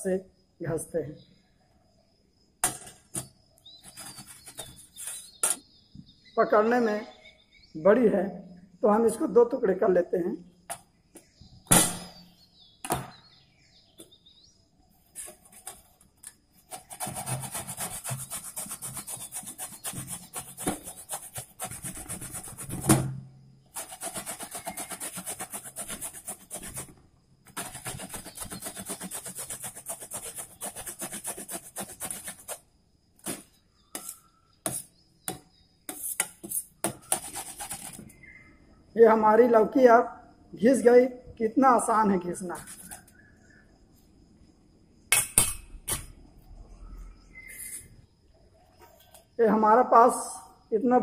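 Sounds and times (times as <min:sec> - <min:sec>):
vegetable grating on metal grater: 0:03.8 - 0:05.4, 0:16.6 - 0:22.9, 0:23.8 - 0:26.9, 0:27.5 - 0:32.6, 0:35.9 - 0:38.0
scrapes: 0:03.8 - 0:05.6
sharp knock: 0:11.7 - 0:13.2, 0:45.1 - 0:46.1.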